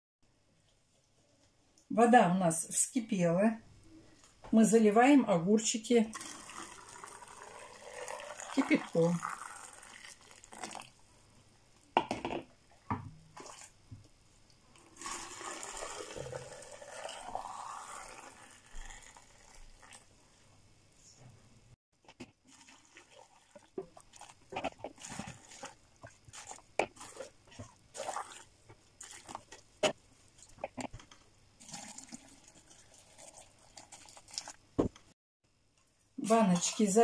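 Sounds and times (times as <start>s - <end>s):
boiling water pouring into jar: 6.0s - 11.2s, 13.4s - 13.8s, 14.7s - 20.4s, 22.1s - 34.8s.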